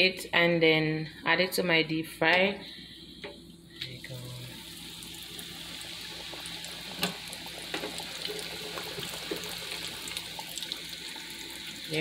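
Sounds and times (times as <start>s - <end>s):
frying crackles: 4.1s - 12.0s
oil bubbling and sizzling: 4.1s - 12.0s.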